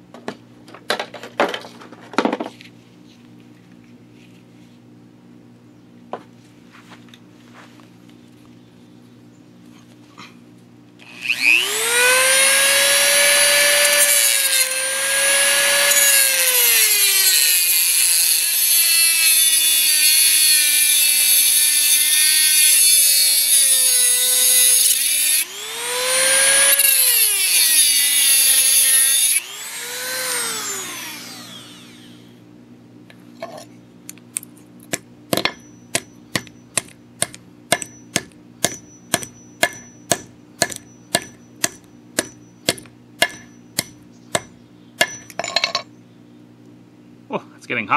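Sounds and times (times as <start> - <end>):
rotary tool cutting metal: 11.0 - 32.3.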